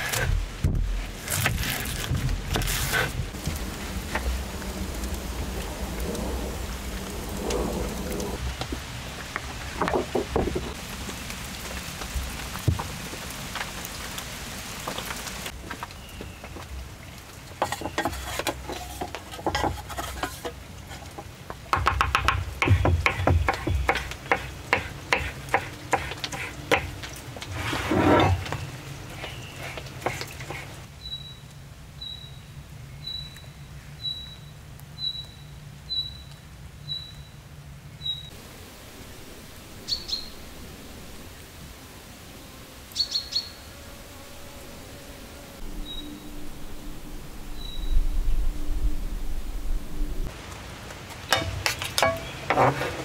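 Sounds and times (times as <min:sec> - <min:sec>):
steady rain hiss: 0:00.0 - 0:53.0
sharp knocks and clicks: 0:21.7 - 0:26.9.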